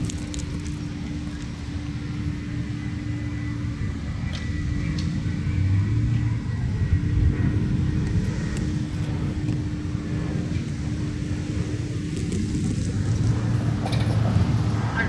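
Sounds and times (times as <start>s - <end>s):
constant hum: 0.0s - 15.0s
train rumbling: 0.0s - 15.0s.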